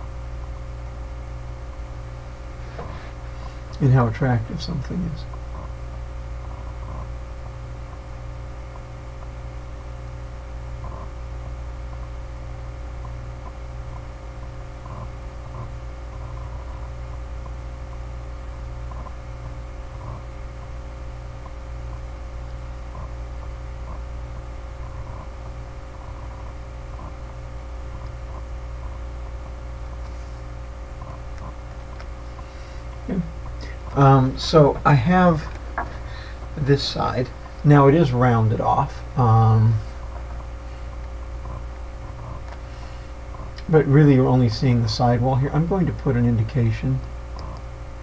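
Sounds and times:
low electrical hum with hiss: 0.0 - 48.0
faint ticks: 13.0 - 18.0.

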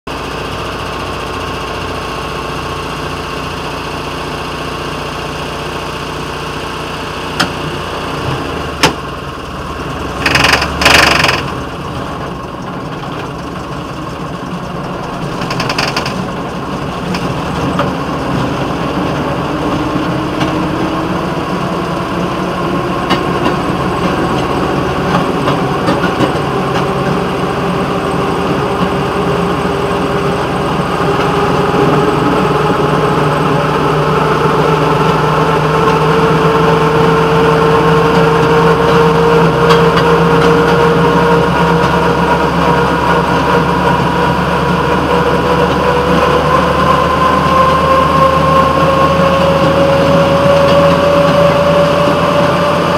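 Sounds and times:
rail motorcar engine running: 0.1 - 52.9
sharp knocks: 10.2 - 11.6.

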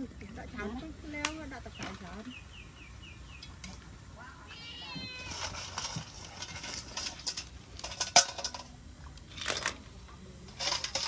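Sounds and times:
animal cry falling in pitch: 4.2 - 5.5.

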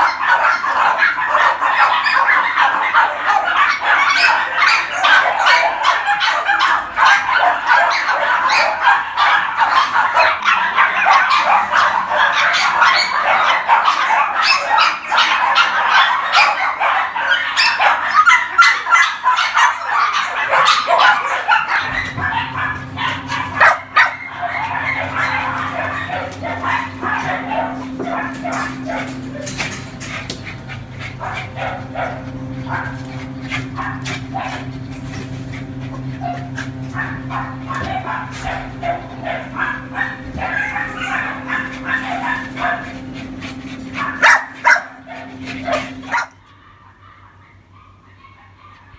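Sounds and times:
dogs barking and yipping: 0.0 - 48.9
steady low hum: 20.9 - 47.7.

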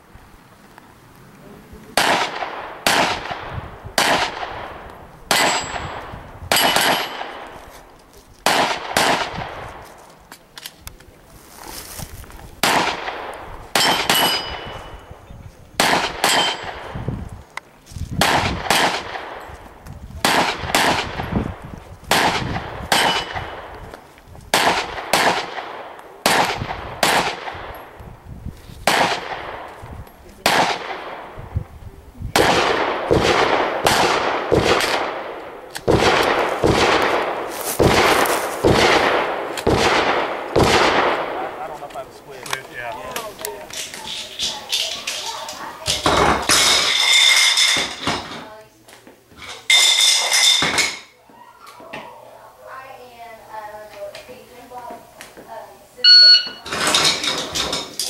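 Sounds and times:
gunshots: 2.0 - 7.6, 8.4 - 9.8, 12.6 - 15.0, 15.8 - 17.0, 18.2 - 19.4, 20.2 - 23.8, 24.5 - 27.9, 28.8 - 29.8, 30.4 - 31.4, 32.3 - 42.0
steel plate ringing: 5.3 - 6.0, 13.8 - 15.1.

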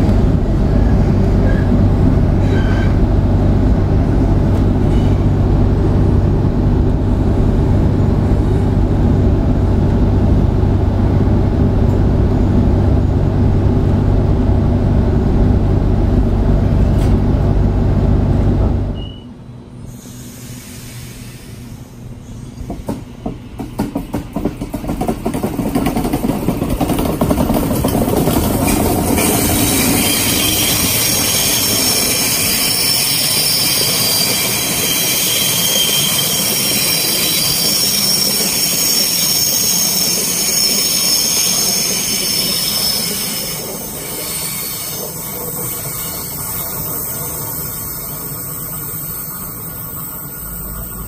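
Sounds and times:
train rumble: 0.0 - 51.0
train wheels clicking over rail joints: 22.6 - 50.8
high-pitched wheel squeal: 29.2 - 51.0.

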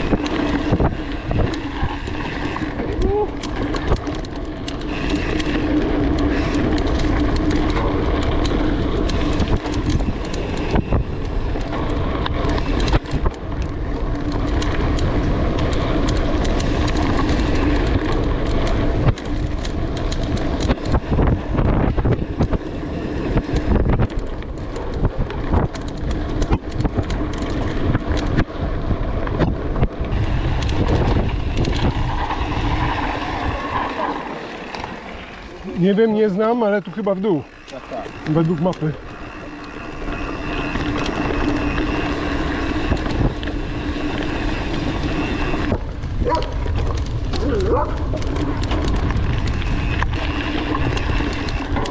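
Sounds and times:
bike knocking and rattling: 0.0 - 51.9
tyres rumbling on dirt: 0.0 - 51.9
wind buffeting microphone: 0.0 - 51.9.

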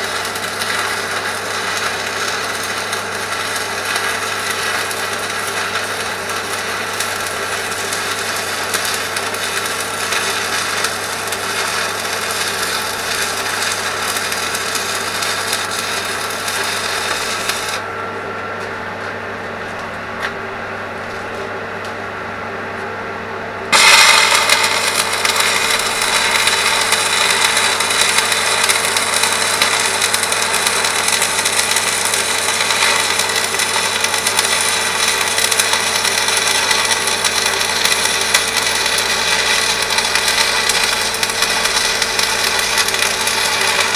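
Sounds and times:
angle grinder grinding metal: 23.7 - 43.9.

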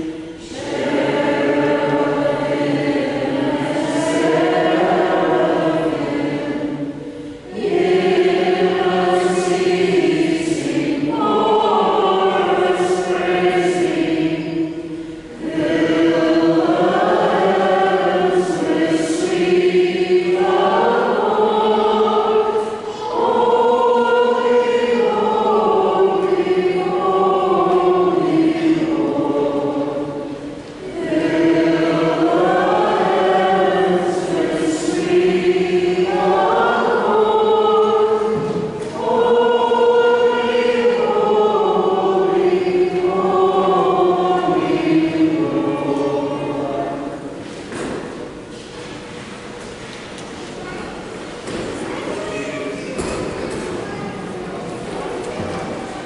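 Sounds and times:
choir singing a hymn: 0.0 - 51.8.

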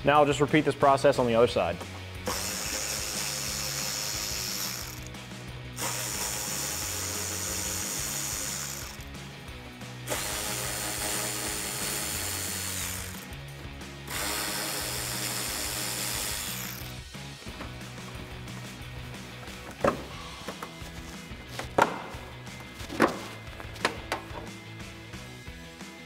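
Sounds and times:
electric ratchet whirring: 2.2 - 9.1, 10.1 - 13.4, 14.1 - 17.0.

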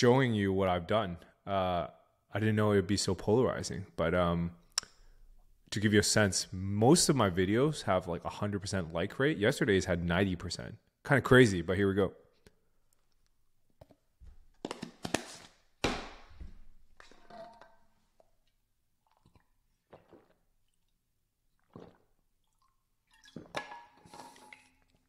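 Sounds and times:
mouth and swallowing noises: 19.0 - 23.6.

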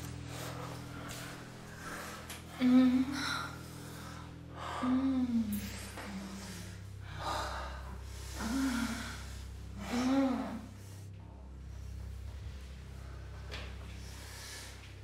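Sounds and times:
low steady hum: 0.0 - 15.0
person gasping and moaning: 2.5 - 10.9.

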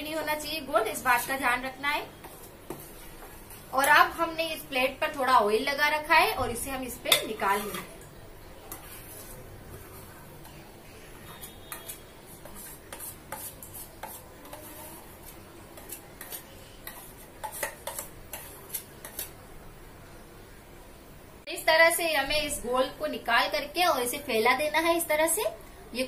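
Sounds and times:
metal spoon scraping steel bowl: 7.1 - 8.0, 11.2 - 19.4.

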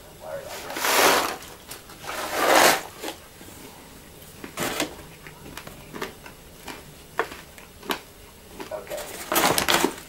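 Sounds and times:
popcorn bag rustling and crinkling: 0.4 - 3.2, 4.3 - 10.0.

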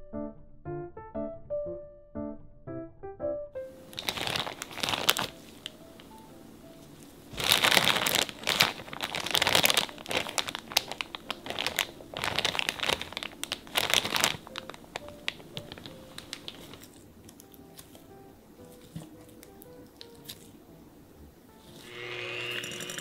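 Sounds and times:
soft background music: 0.0 - 23.0
plastic bag crinkling: 3.7 - 20.6.

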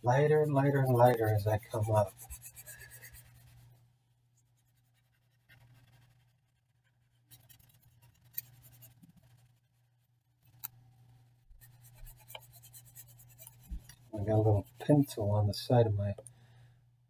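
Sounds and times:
pencil scratching on paper: 0.0 - 3.8, 4.4 - 10.0, 11.5 - 15.2.

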